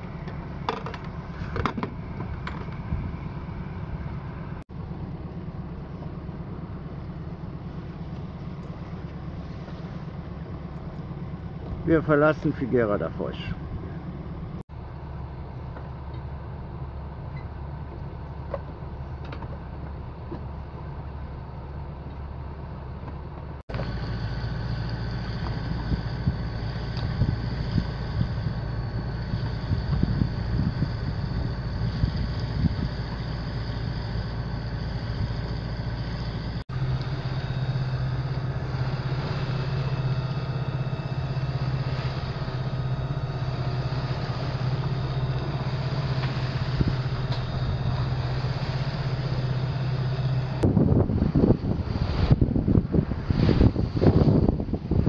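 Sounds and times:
boat engine running: 0:00.0 - 0:55.0
wind noise: 0:01.0 - 0:04.6, 0:23.7 - 0:36.6, 0:38.5 - 0:55.0
water noise: 0:23.7 - 0:55.0.

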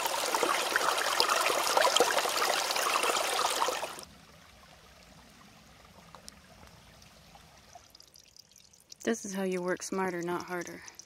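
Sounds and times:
stream splashing over rocks: 0:00.0 - 0:08.3.

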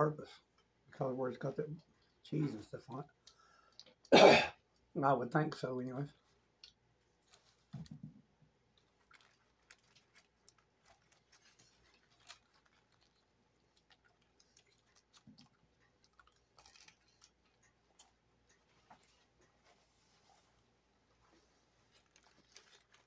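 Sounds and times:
chewing crusty bread: 0:08.6 - 0:19.4, 0:21.8 - 0:23.0.

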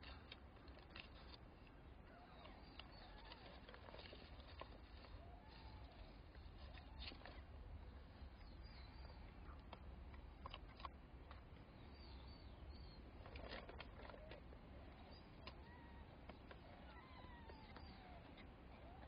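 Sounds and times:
kittens chirping: 0:11.8 - 0:19.0.

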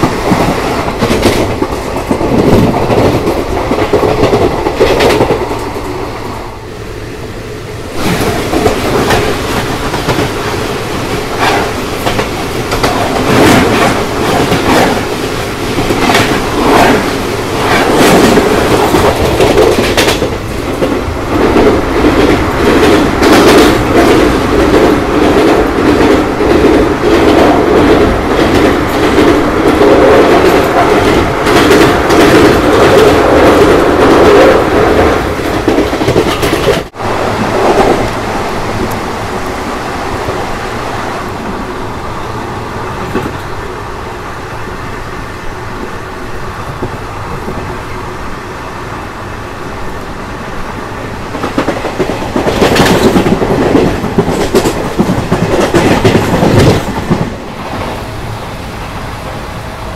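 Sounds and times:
train wheels clacking over rail joints: 0:00.0 - 0:06.0, 0:08.0 - 0:39.0, 0:51.3 - 0:58.0
train rumble: 0:00.0 - 0:59.9.

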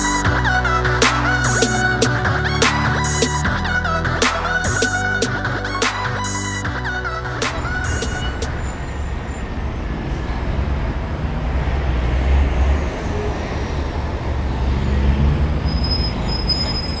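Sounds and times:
low rumble of passing vehicles: 0:06.4 - 0:17.0
faint high squeal: 0:15.6 - 0:17.0.

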